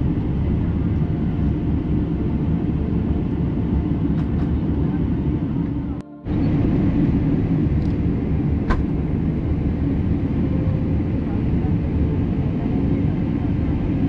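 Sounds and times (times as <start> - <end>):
vehicle rumbling in motion: 0.0 - 14.0.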